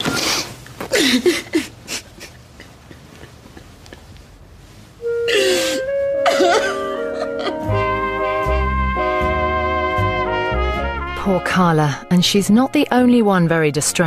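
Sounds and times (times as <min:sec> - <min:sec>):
woman crying: 0:00.9 - 0:04.1, 0:05.2 - 0:07.7
sustained music: 0:05.0 - 0:14.0.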